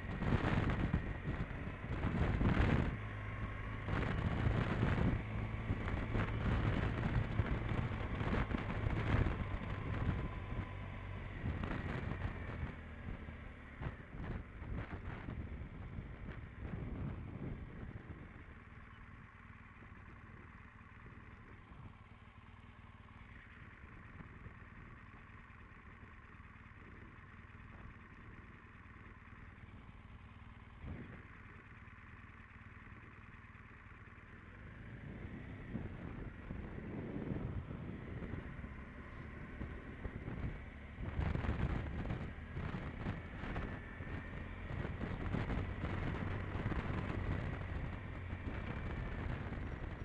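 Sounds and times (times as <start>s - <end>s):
wind rushing over microphone: 0.0s - 13.2s, 35.1s - 38.8s, 39.4s - 50.0s
motorcycle engine running: 0.0s - 50.0s.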